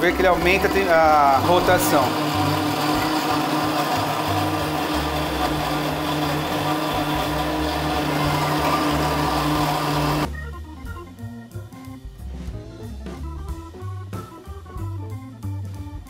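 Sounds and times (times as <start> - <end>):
blender whirring: 0.0 - 10.3.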